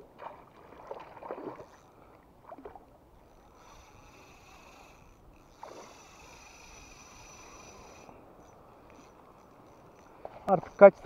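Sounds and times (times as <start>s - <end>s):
water splashing against canoe: 0.0s - 1.7s
faint hiss: 3.2s - 10.9s.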